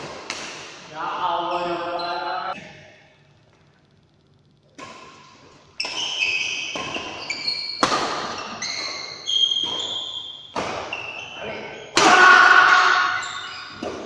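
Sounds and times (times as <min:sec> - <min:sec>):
rackets hitting shuttlecock: 0:00.0 - 0:00.9, 0:04.8 - 0:11.3, 0:11.9 - 0:14.0
high squeaking tones: 0:05.8 - 0:13.8.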